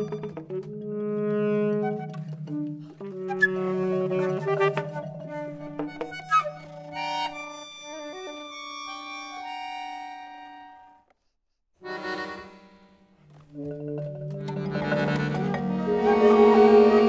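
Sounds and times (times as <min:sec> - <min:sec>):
chamber quartet playing held notes: 0:13.5 - 0:17.0.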